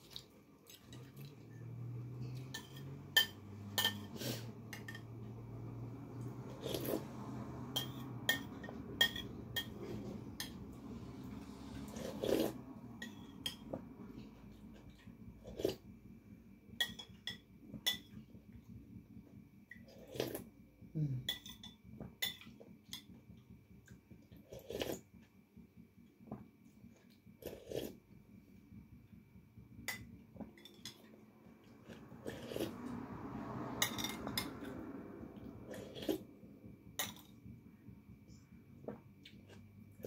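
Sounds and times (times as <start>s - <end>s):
faint low hum: 0.0s - 40.0s
dishes and cutlery clinking: 2.3s - 5.2s, 7.7s - 10.6s.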